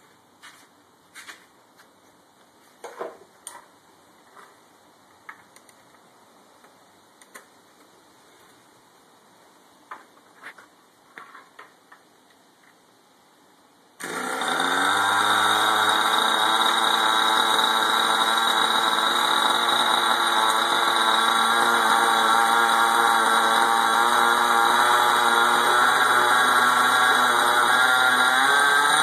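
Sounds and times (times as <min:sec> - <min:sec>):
electric starter spinning: 0:14.0 - 0:29.0
small engine idling: 0:14.0 - 0:29.0.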